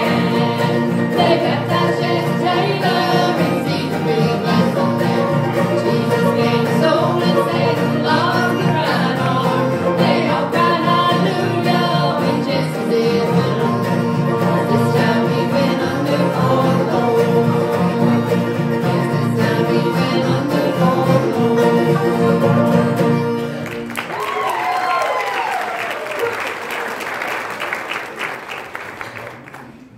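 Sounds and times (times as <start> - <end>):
voices singing together: 0.0 - 23.4
bluegrass band playing: 0.0 - 24.1.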